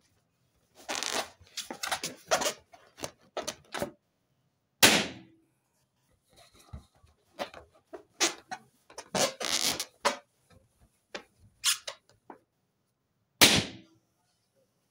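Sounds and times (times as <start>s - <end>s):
balloon squeaking and scrunching: 0.8s - 3.8s, 7.4s - 10.2s, 11.6s - 12.0s
balloon popping: 8.2s - 10.2s, 13.4s - 13.9s.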